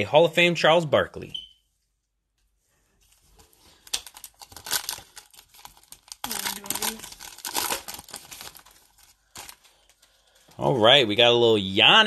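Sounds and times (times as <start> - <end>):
foil wrapper crinkling and tearing: 3.6 - 10.5.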